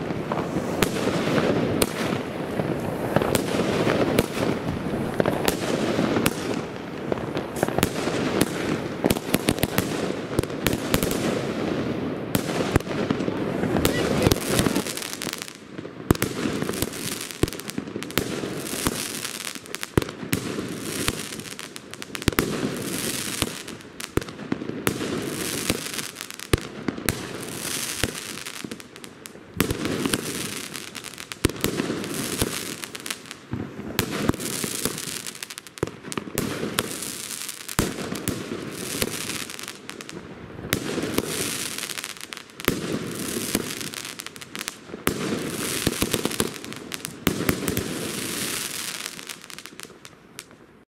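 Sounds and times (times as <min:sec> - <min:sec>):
firework bangs and crackling bursts: 0:00.0 - 0:50.8.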